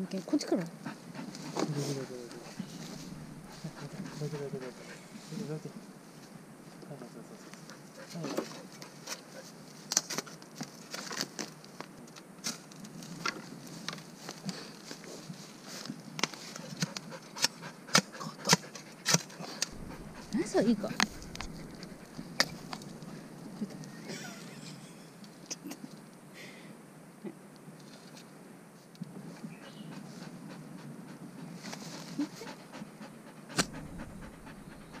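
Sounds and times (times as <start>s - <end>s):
dog panting: 0.6s - 5.6s, 7.4s - 9.6s, 16.4s - 24.0s, 29.5s - 35.0s.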